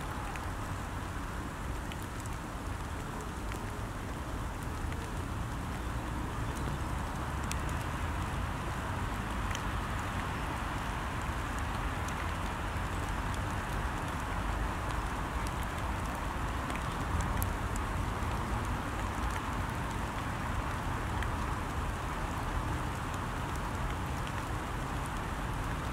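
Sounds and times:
rain falling on a pond: 0:00.0 - 0:25.9.

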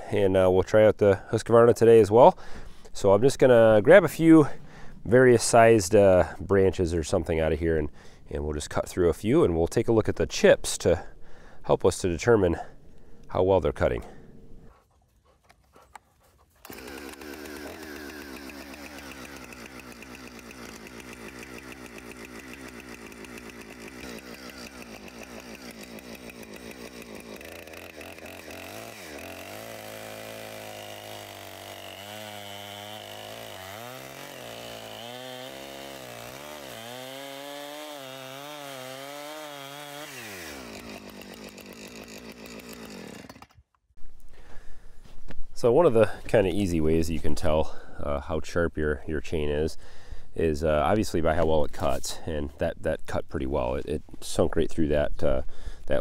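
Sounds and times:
chainsaw idling and revving: 0:16.6 - 0:43.7.

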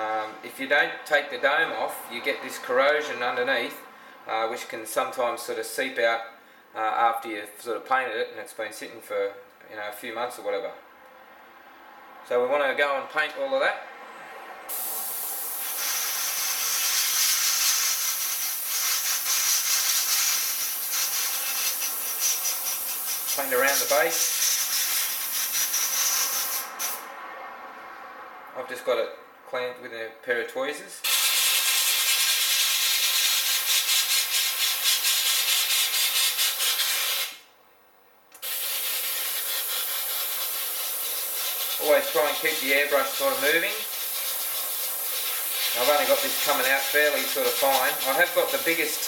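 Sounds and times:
airbrush air hiss: 0:14.7 - 0:27.1, 0:31.0 - 0:37.4, 0:38.4 - 0:49.0.

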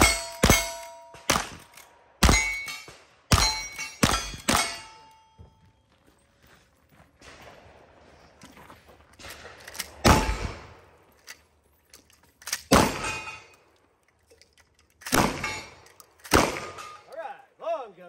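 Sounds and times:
steel targets ringing: 0:00.0 - 0:01.4, 0:02.2 - 0:05.5
rifle shots: 0:00.0 - 0:05.1, 0:09.2 - 0:11.0, 0:12.4 - 0:13.5, 0:15.0 - 0:17.1.

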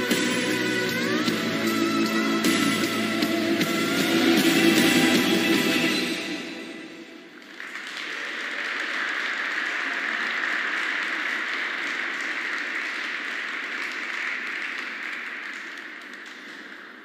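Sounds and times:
audience applauding: 0:07.2 - 0:17.0.

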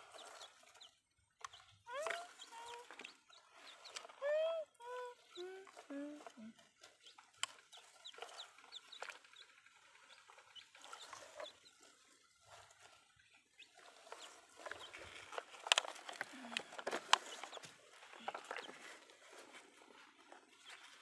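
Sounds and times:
plastic toy trucks clacking: 0:10.4 - 0:19.1.

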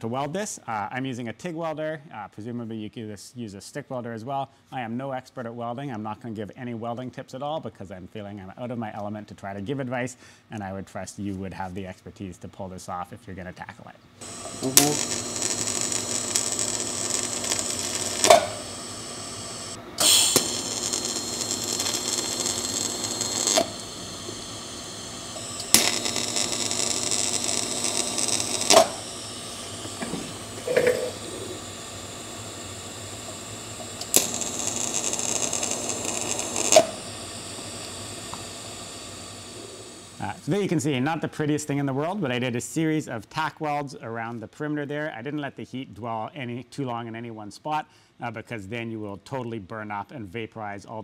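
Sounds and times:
welding arc hissing and buzzing: 0:14.2 - 0:40.8
steady hum: 0:14.2 - 0:41.4
sharp clicks: 0:25.4 - 0:29.1, 0:33.8 - 0:37.0.

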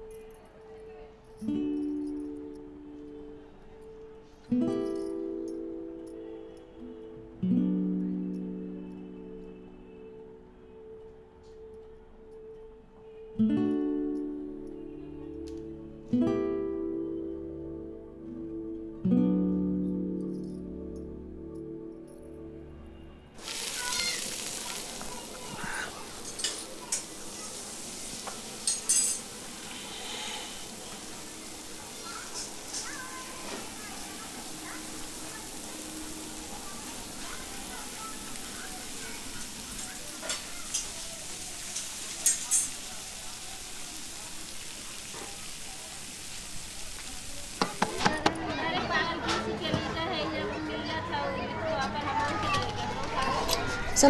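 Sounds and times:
food sizzling in pan: 0:23.4 - 0:48.4.

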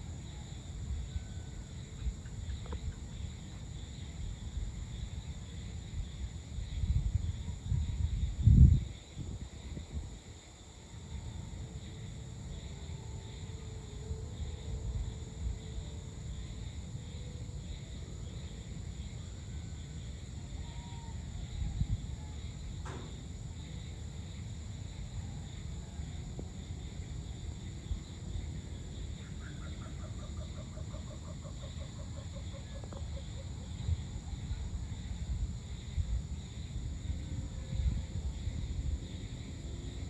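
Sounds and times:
insects droning: 0:00.0 - 0:40.0.

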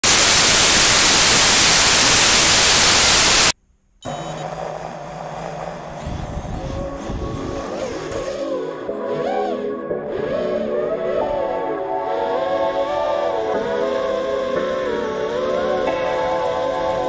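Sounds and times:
static white noise hiss: 0:00.0 - 0:03.6
music: 0:06.2 - 0:17.0.

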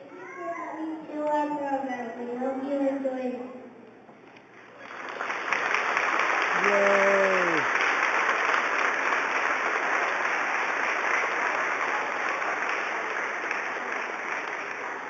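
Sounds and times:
audience applauding: 0:04.7 - 0:15.0
person calling out: 0:06.6 - 0:07.7.

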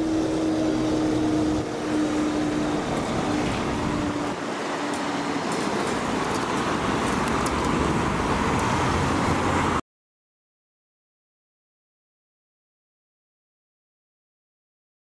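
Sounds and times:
cars driving over crossing: 0:00.0 - 0:09.8.

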